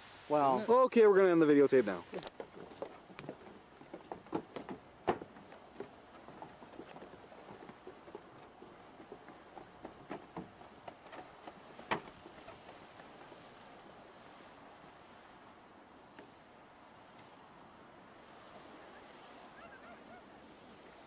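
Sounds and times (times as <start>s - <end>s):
faint steady hiss: 0.0s - 21.0s.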